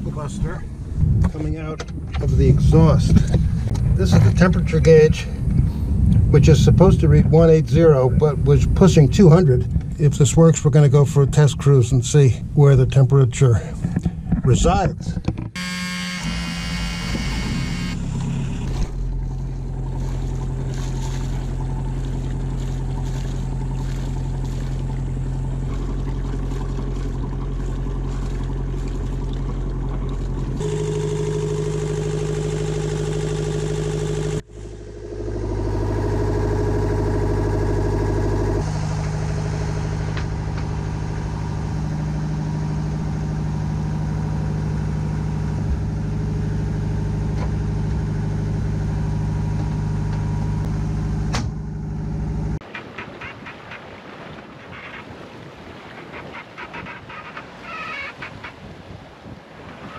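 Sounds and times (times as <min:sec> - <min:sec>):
marine diesel engine running: 0:15.6 - 0:53.7.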